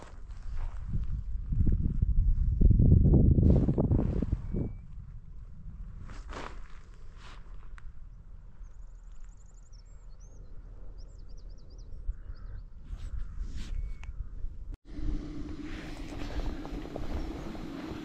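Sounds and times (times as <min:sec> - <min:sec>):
wind rumbling on microphone: 0:00.0 - 0:18.0
bird trill and chirps: 0:08.6 - 0:14.4.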